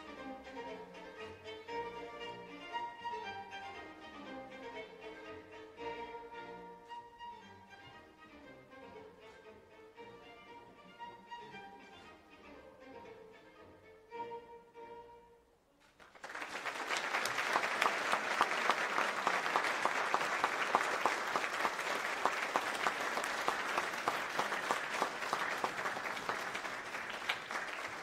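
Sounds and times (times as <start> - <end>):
audience applauding: 16.0 - 28.0.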